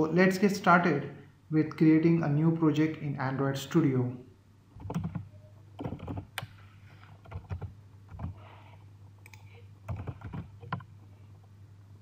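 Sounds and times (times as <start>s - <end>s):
steady low hum: 0.0s - 12.0s
keyboard keystrokes: 4.8s - 6.5s, 9.2s - 10.9s.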